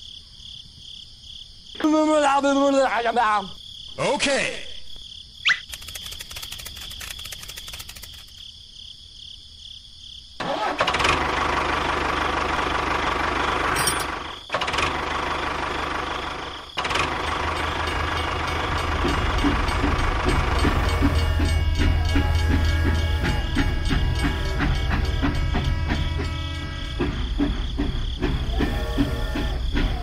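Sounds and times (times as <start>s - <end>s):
quiet crackling and clicking: 5.6s - 8.4s
tractor engine running: 5.6s - 8.4s, 10.4s - 30.0s.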